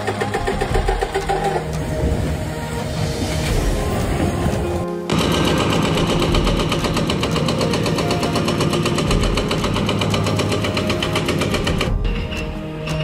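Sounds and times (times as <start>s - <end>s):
excavator diesel engine clattering: 0.0s - 2.0s, 5.1s - 13.0s.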